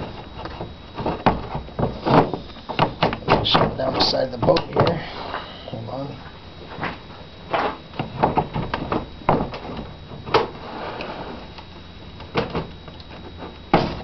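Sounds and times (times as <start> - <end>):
knocks and scraping of steering cable: 0.0 - 5.0.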